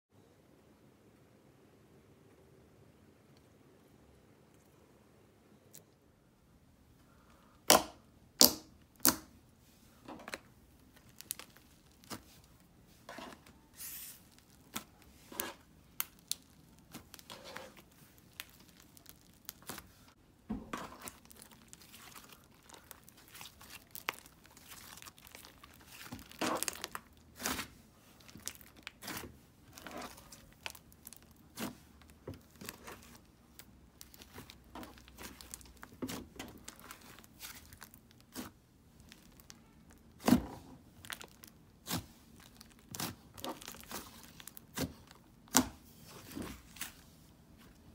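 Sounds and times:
slime squelching and popping: 10.3s - 12.7s, 13.9s - 46.9s.

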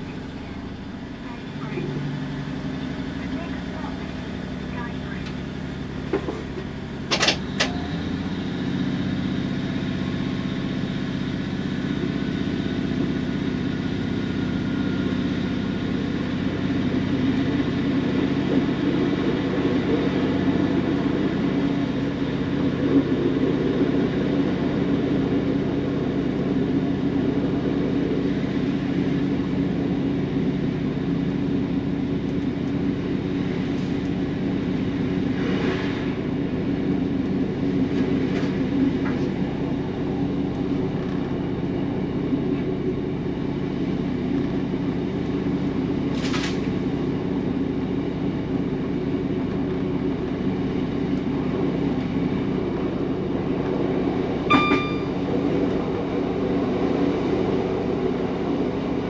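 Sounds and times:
train diesel engine running: 0.0s - 59.0s.

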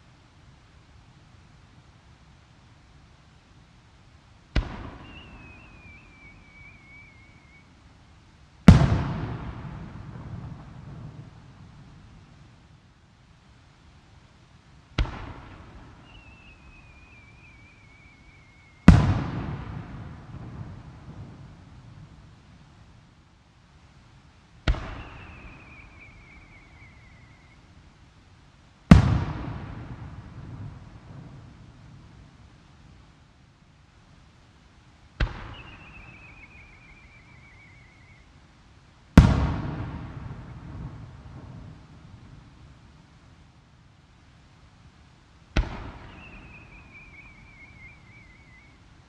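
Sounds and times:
firework mortar bang: 4.5s - 6.0s, 8.6s - 11.4s, 15.0s - 17.3s, 18.8s - 21.6s, 24.6s - 26.5s, 28.9s - 31.5s, 35.2s - 36.5s, 39.2s - 42.0s, 45.5s - 47.1s
falling firework whistle: 4.6s - 7.8s, 15.0s - 20.1s, 24.7s - 27.7s, 35.2s - 38.3s, 45.6s - 48.8s.

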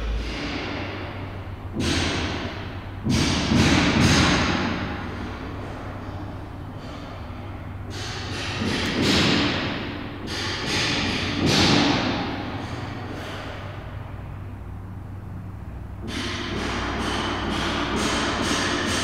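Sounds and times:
low hum: 0.0s - 3.1s.

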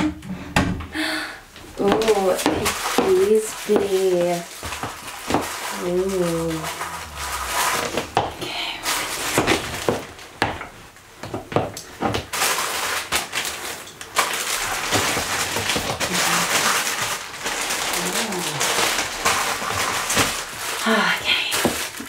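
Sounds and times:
plastic packaging crinkling: 1.7s - 10.8s, 11.8s - 22.0s
leather clothing creaking: 4.7s - 10.2s.

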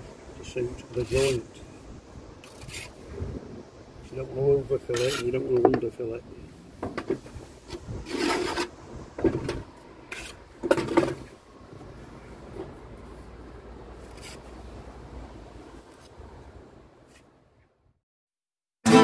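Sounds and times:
trowel scraping mortar: 2.4s - 3.0s, 4.9s - 5.5s, 8.0s - 8.8s, 10.1s - 10.4s.

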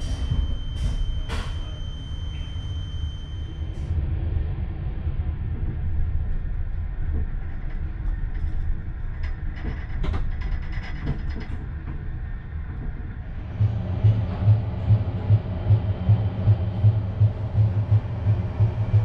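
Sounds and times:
train wheels rumbling on rails: 0.0s - 19.0s.

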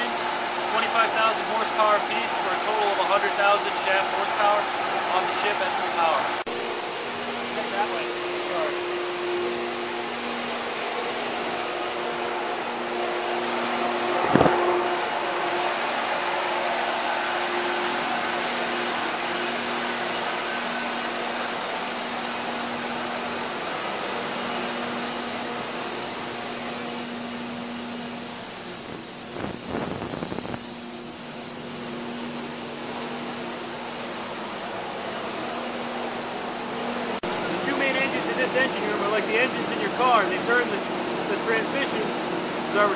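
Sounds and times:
ventilation running: 0.0s - 42.9s
sharp knock: 14.3s - 14.6s.

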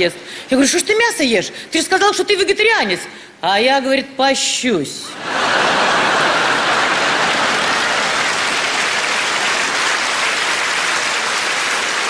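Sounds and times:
audience applauding: 5.2s - 12.0s.

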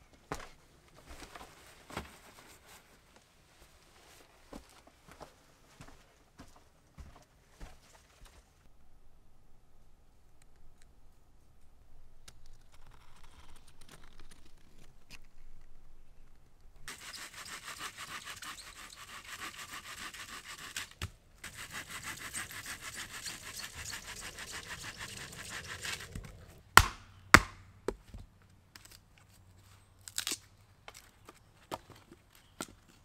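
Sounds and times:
hand saw cutting wood: 16.9s - 26.6s.

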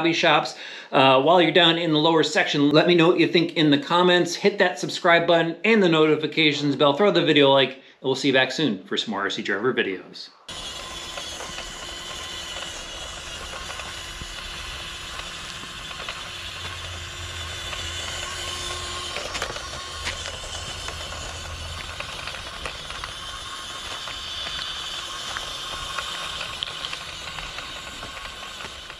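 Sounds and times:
electric motor whine: 10.5s - 28.9s
stones clicking under tyres: 10.5s - 28.9s.

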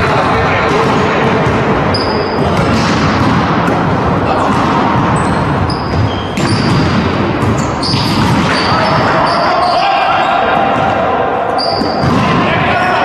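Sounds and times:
echoing hall din: 0.0s - 13.0s
volleyball being struck: 0.1s - 9.2s
sneakers squeaking on floor: 0.7s - 12.3s.

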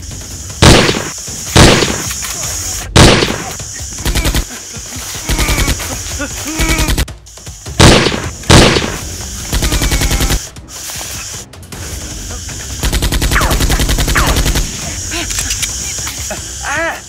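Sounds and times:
automatic gunfire bursts: 0.6s - 2.1s, 3.0s - 4.4s, 7.8s - 10.4s, 12.8s - 14.7s
single loud gunshots: 0.6s - 2.1s, 3.0s - 3.5s, 7.8s - 9.0s.

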